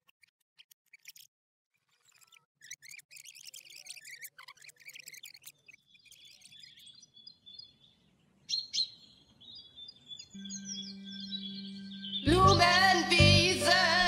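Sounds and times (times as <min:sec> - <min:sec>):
small birds chirping: 0:00.0 - 0:14.0
held music chord: 0:10.4 - 0:14.0.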